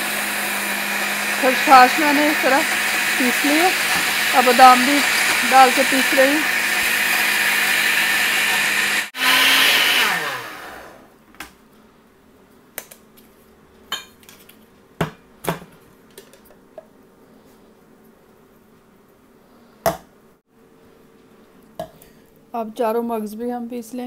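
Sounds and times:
blender motor spinning down: 0.0s - 11.1s.

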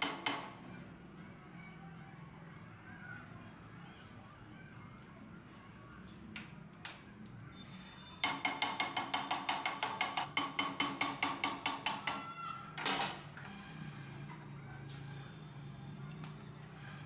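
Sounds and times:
hammer tapping on metal: 0.0s - 0.6s, 8.2s - 12.4s.

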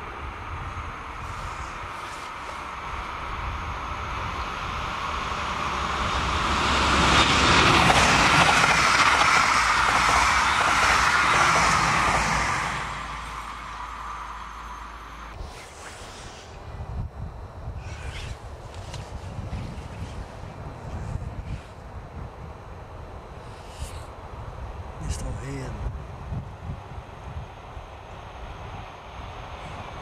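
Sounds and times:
passenger train passing: 0.0s - 15.6s, 20.0s - 30.0s.

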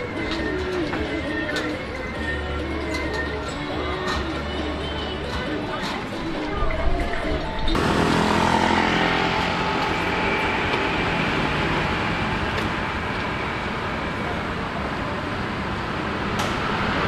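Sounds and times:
vehicle engine: 7.6s - 17.0s
passing road traffic hum: 7.7s - 17.0s.

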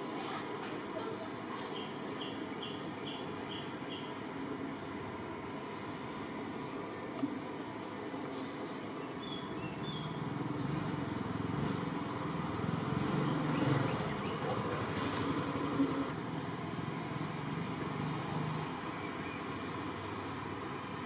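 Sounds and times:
vehicle engine running: 9.8s - 21.0s.

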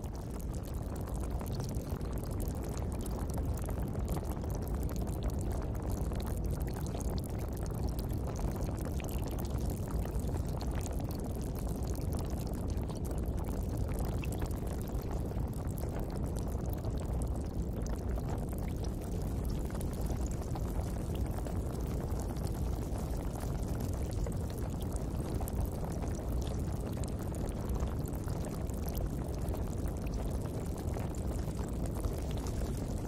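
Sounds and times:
faint crackles: 0.0s - 33.0s.

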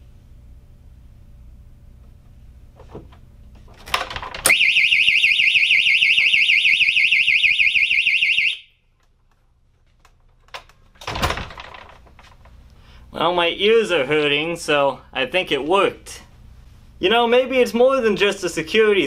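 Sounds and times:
piezo siren warbling: 4.5s - 8.7s.

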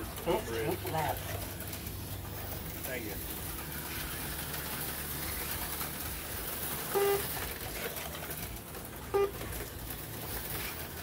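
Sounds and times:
slot cars whirring: 0.0s - 11.0s
short electronic beeps: 6.9s - 7.3s.

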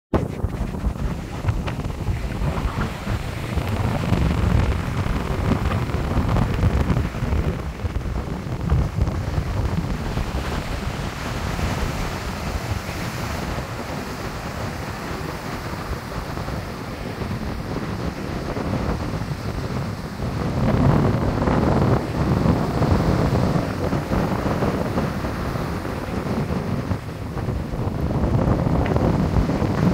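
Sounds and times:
surf breaking on a beach: 0.1s - 29.9s
wind buffeting the microphone: 0.1s - 29.9s.

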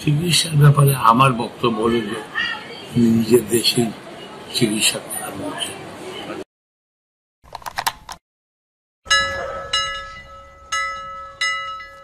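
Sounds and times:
bell chiming: 9.1s - 12.0s.

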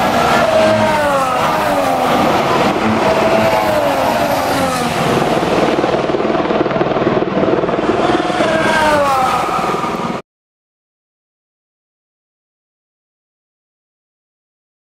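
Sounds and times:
race cars passing at speed: 0.0s - 6.2s, 7.5s - 10.2s
steady engine note: 0.0s - 10.2s.

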